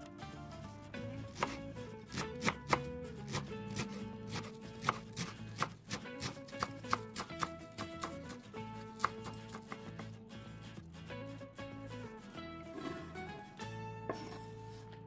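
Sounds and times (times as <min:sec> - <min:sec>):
knife chopping on wooden board: 0:01.4 - 0:08.4, 0:09.0 - 0:10.1.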